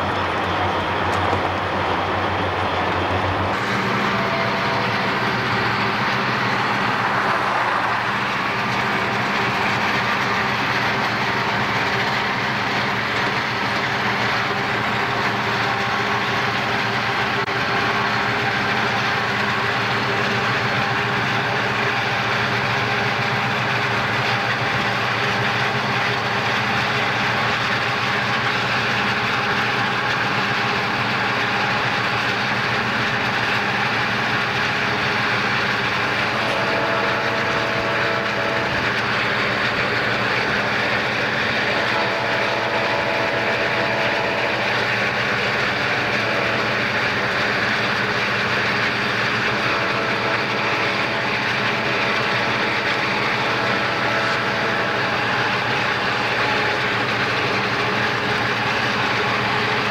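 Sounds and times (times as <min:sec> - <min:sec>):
diesel locomotives running: 0:00.0 - 0:59.9.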